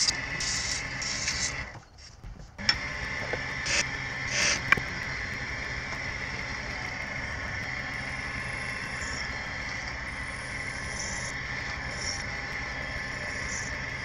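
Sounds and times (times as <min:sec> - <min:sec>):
faint high whine: 0:00.0 - 0:14.0
wood lathe motor hum: 0:00.0 - 0:14.0.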